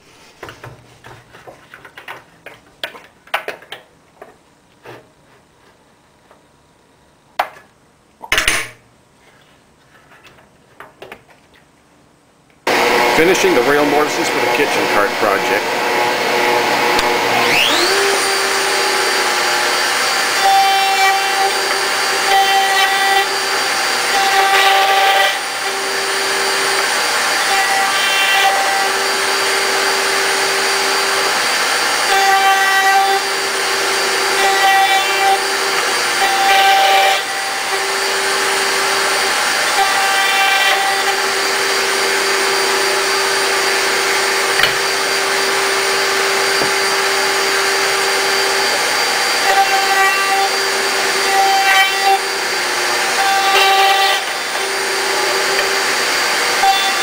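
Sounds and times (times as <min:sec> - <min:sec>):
router bit cutting wood: 0:12.7 - 0:57.0
router whining: 0:12.7 - 0:57.0.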